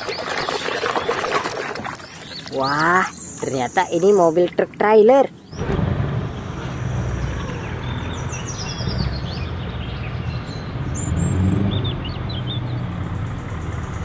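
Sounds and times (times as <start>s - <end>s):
bird chirps: 7.2s - 14.0s
truck diesel engine running: 12.0s - 14.0s.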